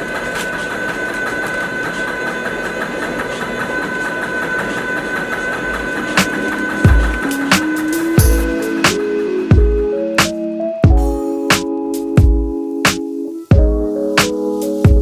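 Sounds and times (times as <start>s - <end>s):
grain mill motor whine: 0.0s - 10.1s.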